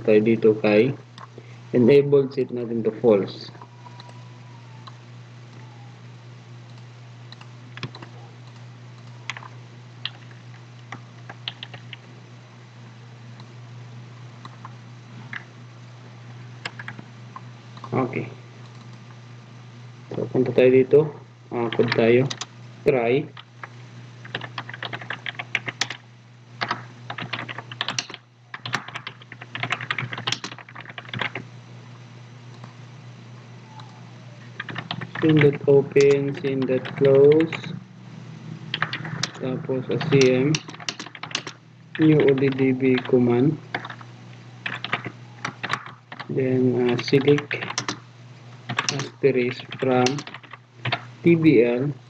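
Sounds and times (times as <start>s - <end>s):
steady low hum: 0.0s - 52.0s
computer keyboard and mouse clicks: 6.7s - 12.0s, 16.6s - 17.0s, 21.7s - 22.5s, 24.2s - 26.0s, 26.6s - 31.4s, 34.6s - 37.7s, 38.7s - 39.4s, 40.0s - 43.1s, 43.7s - 44.0s, 44.6s - 46.3s, 46.9s - 48.0s, 48.7s - 51.1s.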